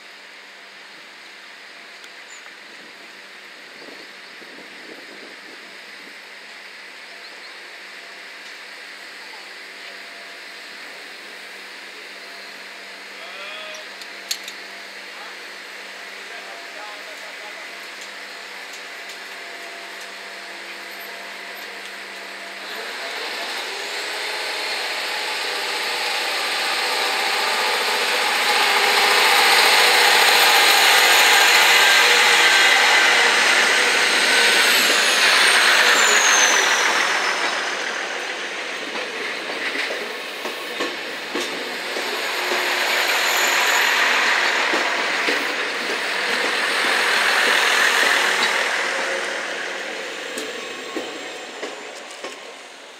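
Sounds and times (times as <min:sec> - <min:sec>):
train engine and wheel noise: 0:00.0 - 0:52.9
high whine falling in pitch: 0:27.5 - 0:39.8.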